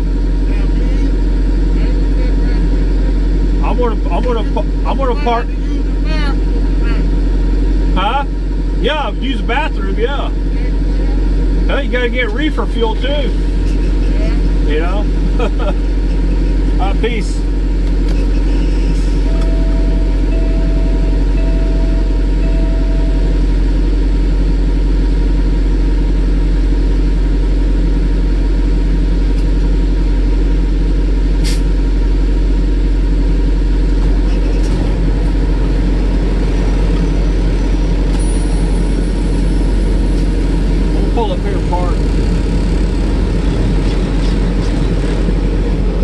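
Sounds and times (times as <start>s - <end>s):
diesel engine idling: 0.0s - 46.0s
short electronic beeps: 18.2s - 23.5s.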